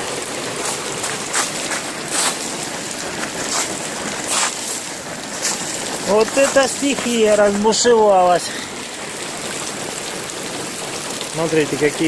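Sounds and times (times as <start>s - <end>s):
rain and running water: 0.0s - 12.0s
boots crunching on hailstones: 0.5s - 8.3s.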